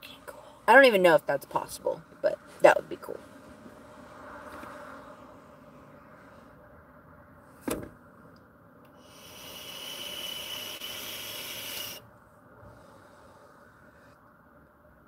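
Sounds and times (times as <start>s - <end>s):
airy hiss of vape inhale: 9.0s - 12.0s.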